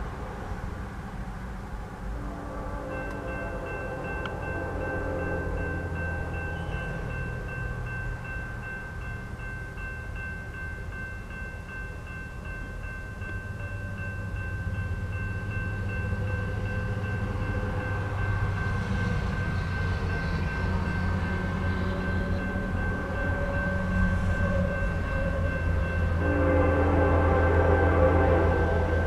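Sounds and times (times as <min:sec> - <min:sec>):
freight train rumble: 0:00.0 - 0:29.0
railroad crossing bell ringing: 0:02.1 - 0:29.0.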